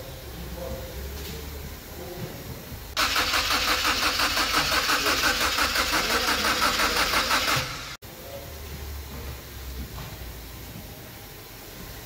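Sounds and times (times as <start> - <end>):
starter motor cranking engine: 3.0 - 8.0.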